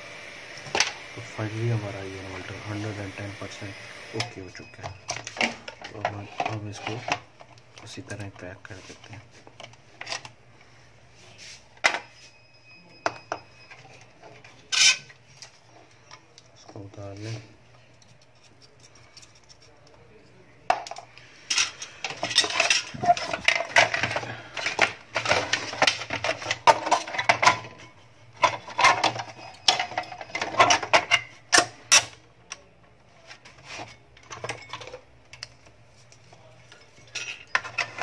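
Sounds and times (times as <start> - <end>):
plastic and metal parts clattering: 4.2 - 10.3, 13.0 - 17.4, 20.7 - 32.2, 33.2 - 38.0.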